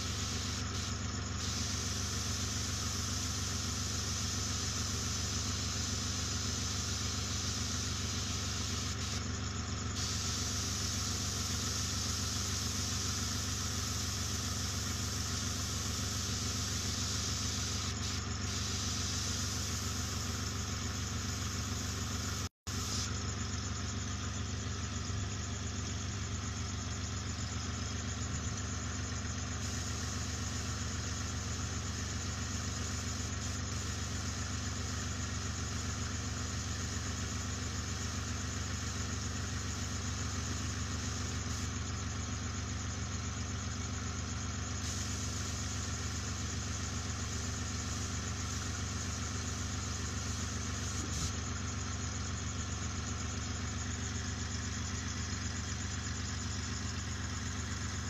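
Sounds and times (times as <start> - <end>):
hiss of air: 0.0 - 23.2, 29.5 - 41.9, 44.7 - 51.5
airbrush compressor running: 0.0 - 24.1, 25.1 - 58.0.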